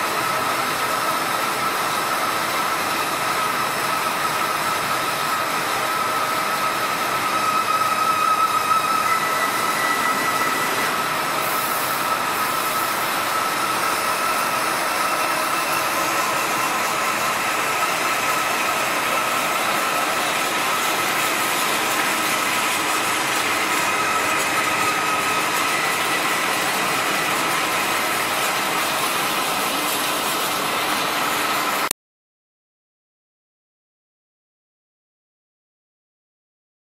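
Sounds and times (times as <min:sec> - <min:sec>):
lathe machine whirring: 0:00.0 - 0:31.9.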